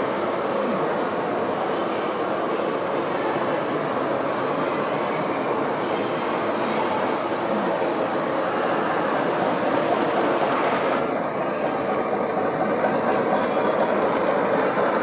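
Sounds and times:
model train wheels rumbling on rail: 0.0s - 15.0s.

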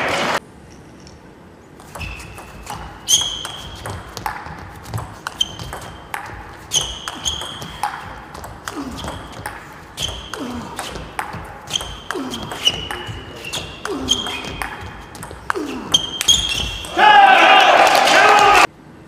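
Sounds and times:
ball bouncing on table: 1.8s - 16.9s
table tennis ball clicking off bats: 1.8s - 16.9s.

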